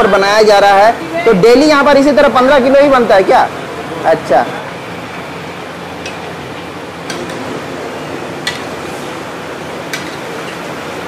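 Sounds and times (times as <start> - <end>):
metal utensils clinking: 8.4 - 8.9, 9.9 - 10.8.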